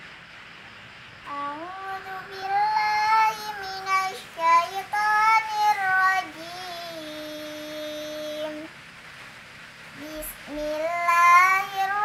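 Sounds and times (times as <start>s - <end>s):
faint steady hiss: 0.0s - 12.0s
girl reciting melodically: 1.2s - 8.8s, 10.0s - 12.0s.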